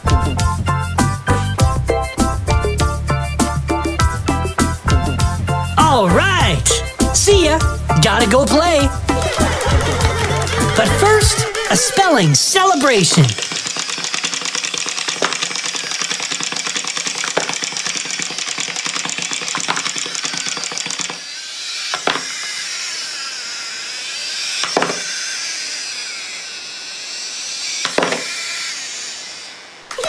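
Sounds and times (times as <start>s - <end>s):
toy whirring: 7.6s - 30.0s
wind-up toys ticking and clattering: 9.2s - 12.0s, 13.0s - 26.4s.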